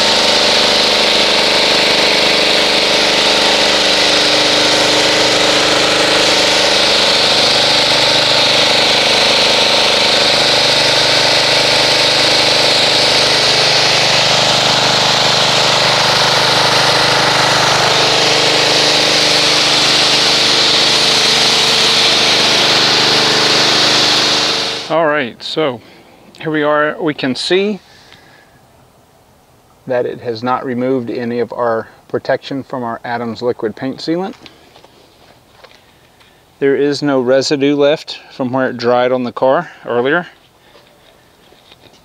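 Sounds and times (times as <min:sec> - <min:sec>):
pressure washer motor humming: 0:00.0 - 0:26.0.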